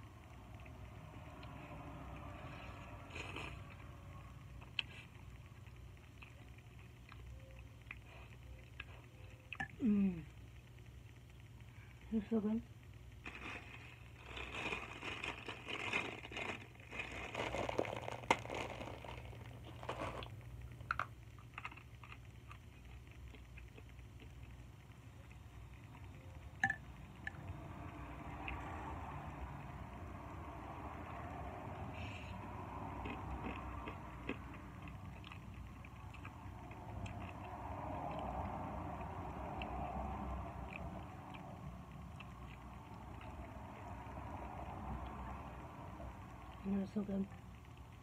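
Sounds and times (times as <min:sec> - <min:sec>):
steady low hum: 0:00.0 - 0:48.0
crunching dry noodles: 0:02.6 - 0:03.9, 0:13.2 - 0:24.6
plastic wrapper crinkling: 0:13.2 - 0:22.3.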